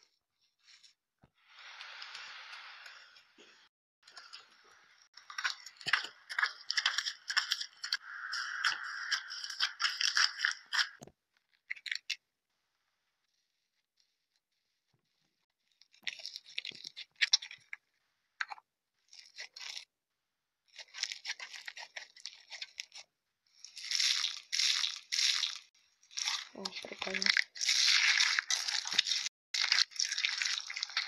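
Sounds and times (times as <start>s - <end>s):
slime crackling and popping: 23.7s - 31.0s.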